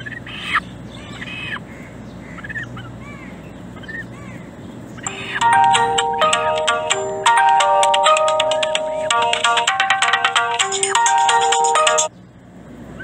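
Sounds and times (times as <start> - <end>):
bird calls: 0.0 - 5.4
tune with bright ringing notes: 5.1 - 12.1.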